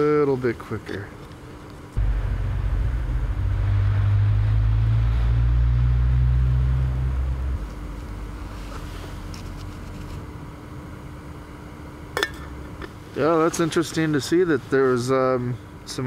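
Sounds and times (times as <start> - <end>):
loud low rumble: 2.0 - 9.3.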